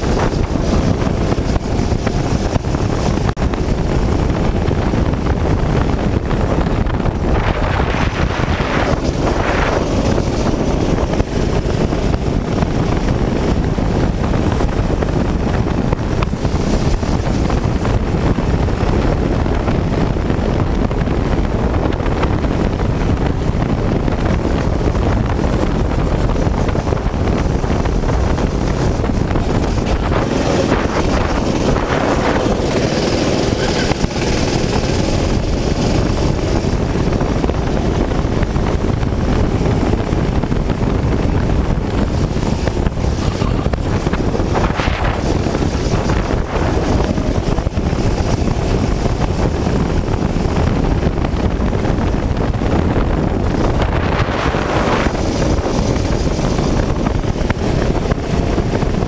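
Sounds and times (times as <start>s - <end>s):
wind buffeting microphone: 0.0s - 59.0s
pitched whine: 27.8s - 37.8s
go-kart engine under load: 29.8s - 36.8s.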